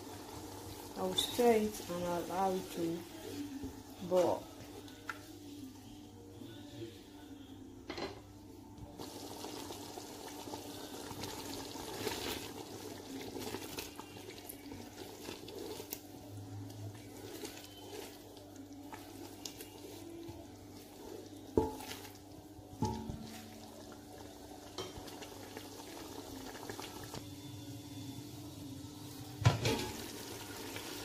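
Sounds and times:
sauce bubbling in a pot: 0:00.0 - 0:05.0, 0:08.9 - 0:27.4, 0:29.0 - 0:31.0
wooden spatula knocking on pot: 0:21.5 - 0:22.1.

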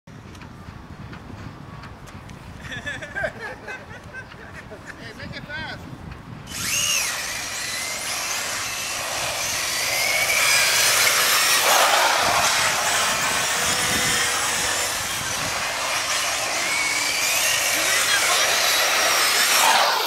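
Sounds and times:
rc car electric motors whining: 0:06.5 - 0:20.0.

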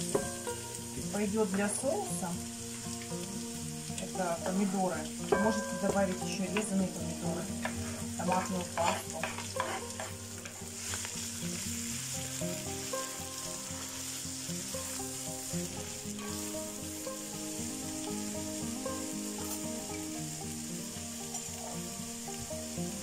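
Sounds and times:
vegetables sizzling in oil: 0:00.0 - 0:23.0
wooden spoon stirring: 0:07.5 - 0:11.0
vegetables clattering into pot: 0:07.6 - 0:11.1.

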